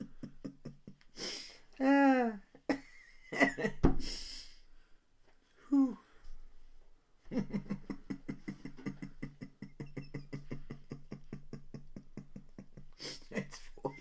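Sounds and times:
stifled laughter: 0:00.0 - 0:01.1, 0:07.3 - 0:14.0.

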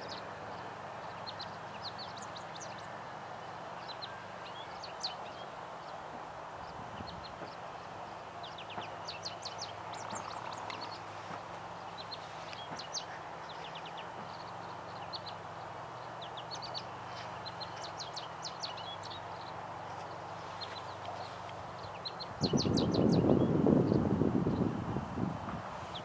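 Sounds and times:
bird twittering song: 0:00.0 - 0:03.2, 0:03.8 - 0:24.9
wind noise: 0:06.6 - 0:07.6, 0:22.3 - 0:26.0.

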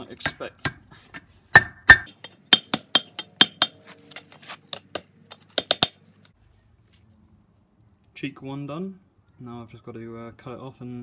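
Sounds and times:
hammer striking sheet steel: 0:01.6 - 0:03.8.

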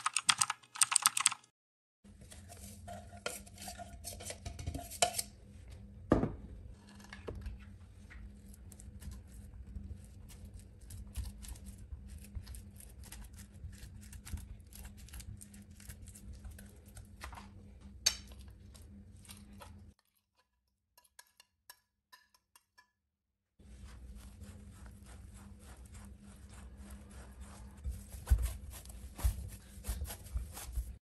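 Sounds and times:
mash scraped into bowl: 0:02.2 - 0:05.3, 0:23.6 - 0:31.0.

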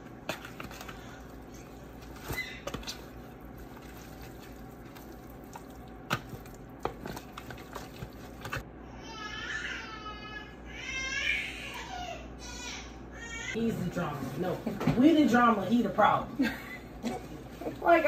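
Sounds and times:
hands squishing raw chicken: 0:00.0 - 0:08.6.

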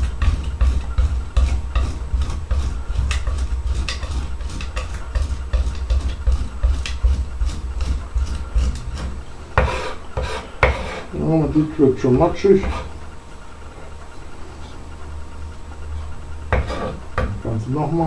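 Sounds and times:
knife scraping garlic and salt: 0:00.0 - 0:11.1, 0:16.6 - 0:17.0
steady low hum: 0:00.0 - 0:18.0.

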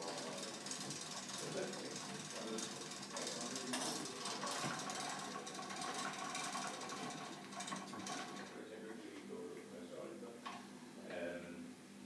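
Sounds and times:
pasta machine gears clicking: 0:00.0 - 0:08.6.

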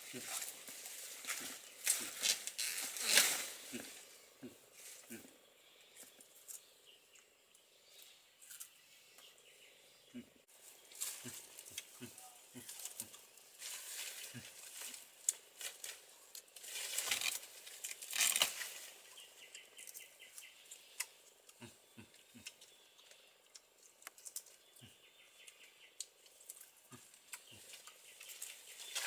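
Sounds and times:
leaves and stems rustling: 0:00.0 - 0:05.3, 0:10.5 - 0:21.3, 0:25.5 - 0:29.0.

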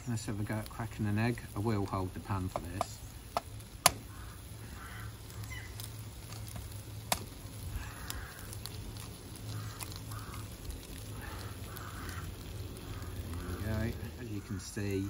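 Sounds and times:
bacon frying: 0:00.0 - 0:15.0
egg cracking tap: 0:02.4 - 0:04.9, 0:06.3 - 0:10.5
geese honking: 0:04.0 - 0:05.8, 0:07.7 - 0:08.8, 0:09.4 - 0:15.0.

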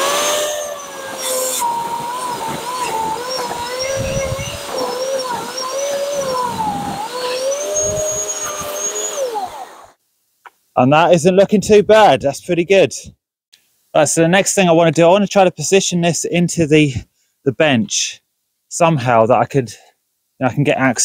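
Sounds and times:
electric chainsaw cutting wood: 0:00.0 - 0:10.0.

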